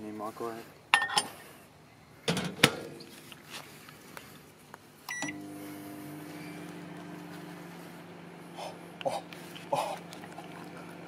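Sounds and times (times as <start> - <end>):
microwave keypad beep: 5.1 - 5.4
microwave oven humming: 5.1 - 11.0.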